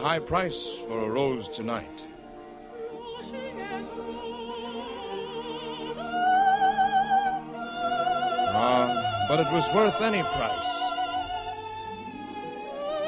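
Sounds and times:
orchestral underscore: 0.0 - 13.0.

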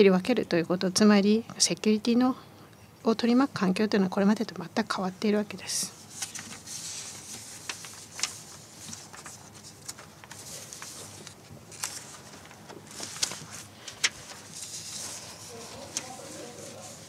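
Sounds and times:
small clicks and rustles: 6.1 - 16.4.

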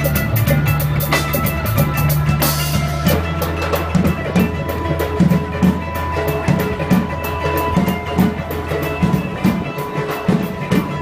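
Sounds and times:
steady drum beat: 0.0 - 11.0
sustained bass notes: 0.0 - 11.0.

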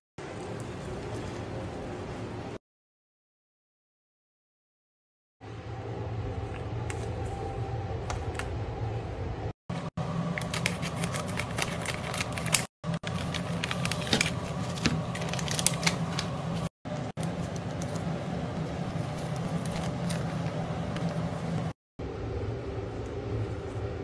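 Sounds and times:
steady low hum: 5.4 - 24.0
paper and plastic wrapping crinkling: 10.4 - 18.2, 18.9 - 21.3.

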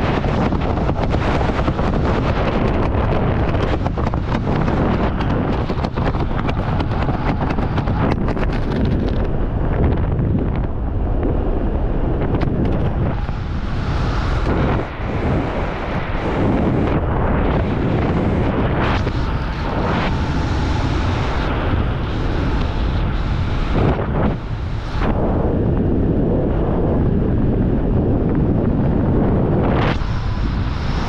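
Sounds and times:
wind roaring over microphone: 0.0 - 31.0.

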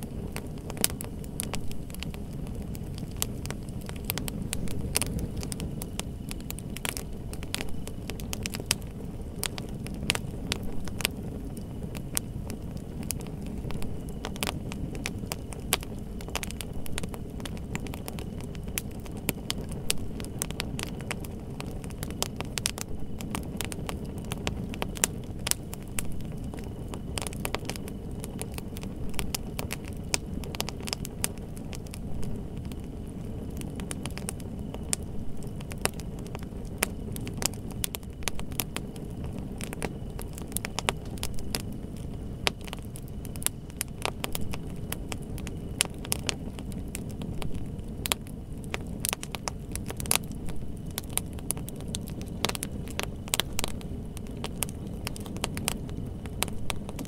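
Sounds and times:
wood fire crackling and popping: 0.0 - 57.0.

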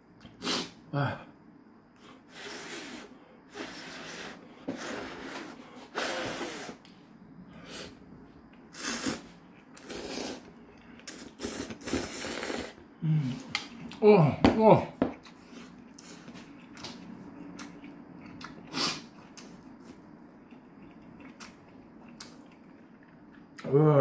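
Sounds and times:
man slurping noodles: 2.3 - 6.8, 8.7 - 10.5, 11.1 - 12.8.

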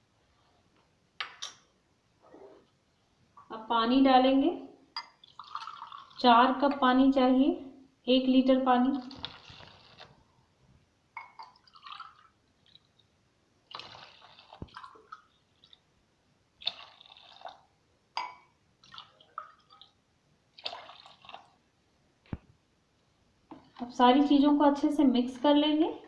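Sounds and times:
water pouring and splashing: 9.0 - 10.1, 11.6 - 12.9, 13.7 - 15.8, 20.6 - 21.6.

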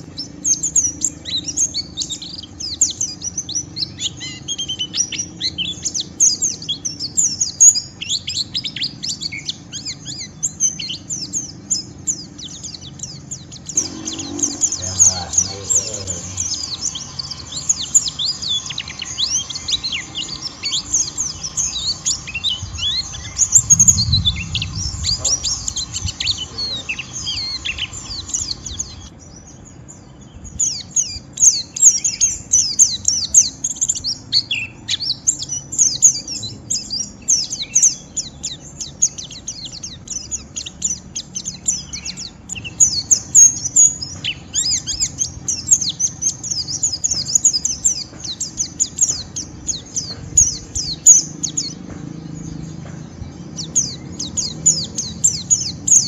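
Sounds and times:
bird twittering: 0.0 - 56.0
background hiss: 4.9 - 29.3.

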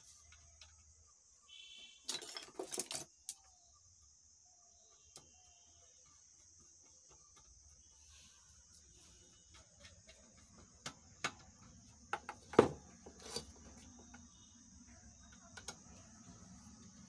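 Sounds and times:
crickets droning: 0.0 - 17.0
metallic clinking and rattling: 2.0 - 3.2.

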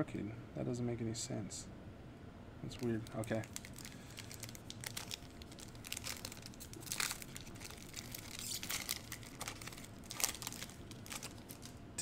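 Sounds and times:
foil wrapper crinkling: 2.7 - 11.8.

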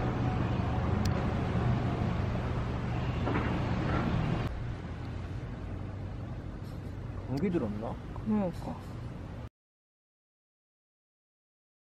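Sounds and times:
wind: 0.0 - 9.5.

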